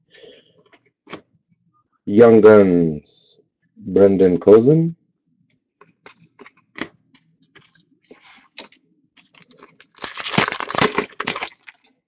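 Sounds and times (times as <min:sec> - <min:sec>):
card handling rustles: 0:07.6 - 0:11.8
wrapper tearing and crinkling: 0:09.2 - 0:11.9.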